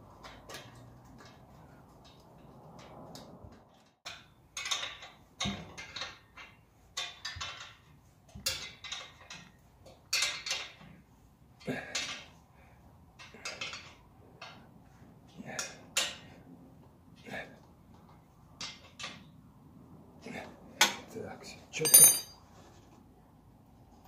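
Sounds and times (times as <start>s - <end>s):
metal clinks and scrapes: 21.8s - 22.9s.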